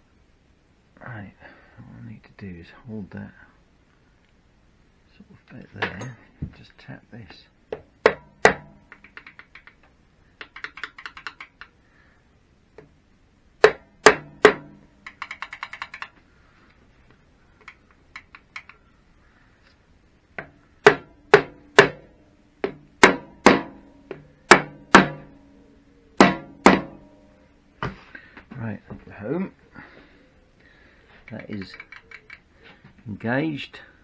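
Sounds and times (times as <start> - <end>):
mallet knocking on metal: 7.8 - 8.8, 13.6 - 14.8, 20.4 - 25.3, 26.2 - 27.0
gear parts clicking: 15.0 - 16.2, 31.2 - 32.4.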